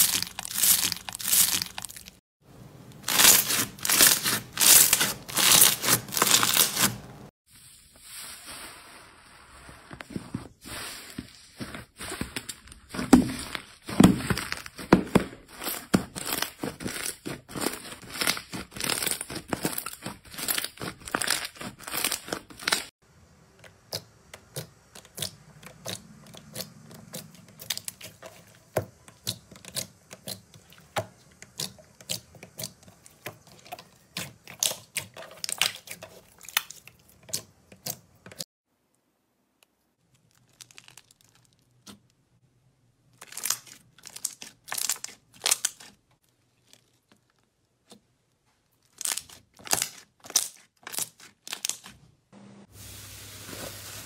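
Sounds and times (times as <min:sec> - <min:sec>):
slime popping and crackling: 0:12.9 - 0:22.9.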